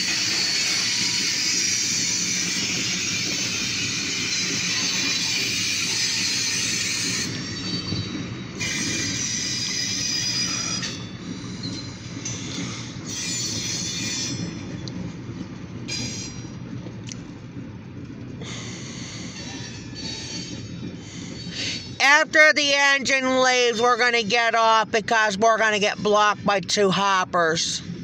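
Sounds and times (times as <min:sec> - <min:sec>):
steel wheels squealing: 0:00.0 - 0:15.0, 0:15.9 - 0:16.7, 0:18.5 - 0:24.5
train cars rumbling on rails: 0:00.0 - 0:28.0.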